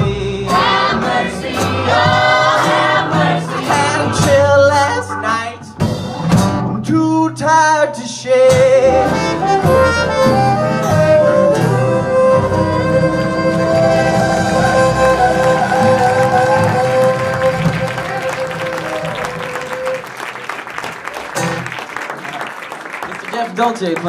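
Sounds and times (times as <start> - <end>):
person singing: 0.0 - 6.2, 10.5 - 20.0
folk-blues band playing: 0.0 - 23.1.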